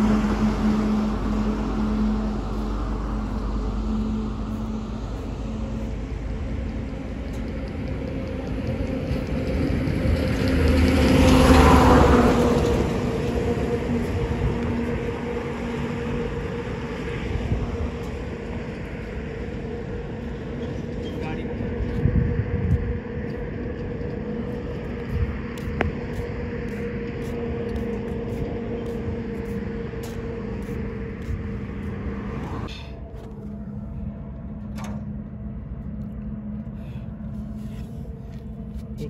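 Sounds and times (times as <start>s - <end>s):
car engine and road rumble: 0.0s - 39.0s.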